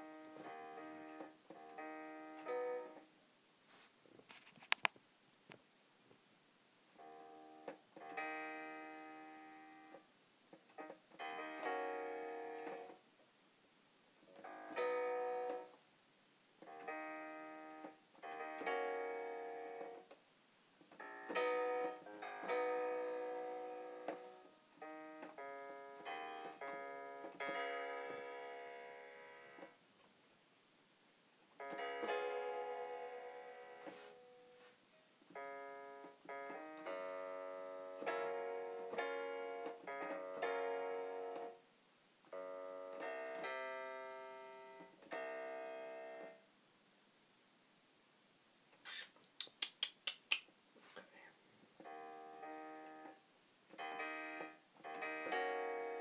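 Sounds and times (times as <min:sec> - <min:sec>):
piano chords: 0:00.0 - 0:03.2, 0:07.0 - 0:10.0, 0:10.6 - 0:13.0, 0:14.3 - 0:15.8, 0:16.6 - 0:20.2, 0:20.9 - 0:29.8, 0:31.5 - 0:46.5, 0:51.8 - 0:56.0.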